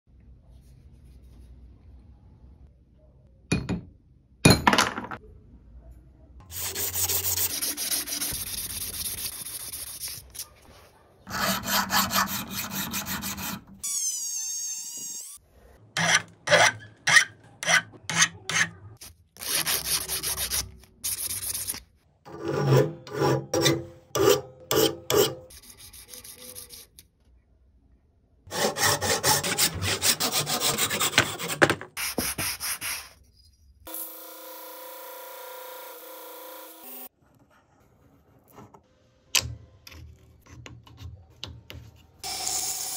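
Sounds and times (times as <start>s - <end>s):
wood rubbing on sandpaper: 6.5s - 10.6s, 11.3s - 13.6s, 19.4s - 21.8s, 25.5s - 26.9s.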